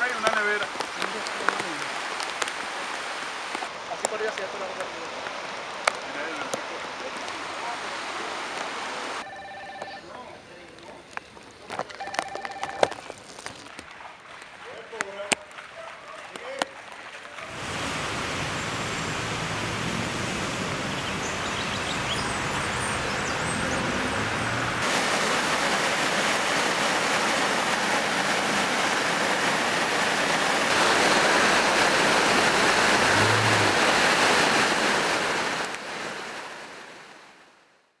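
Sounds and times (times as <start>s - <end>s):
river flowing: 0.0s - 9.2s, 16.8s - 37.8s
water rushing down concrete channel: 0.0s - 9.2s, 12.8s - 37.2s.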